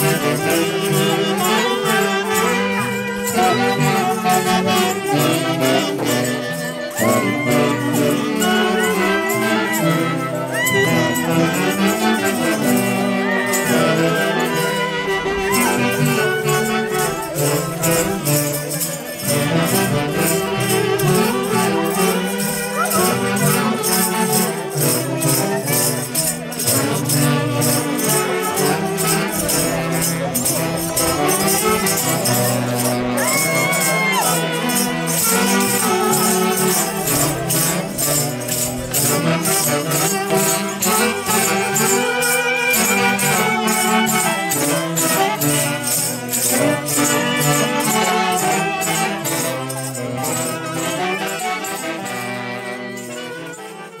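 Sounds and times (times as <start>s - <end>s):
folk orchestra dance tune: 0.0s - 54.0s
jingling beat: 0.0s - 54.0s.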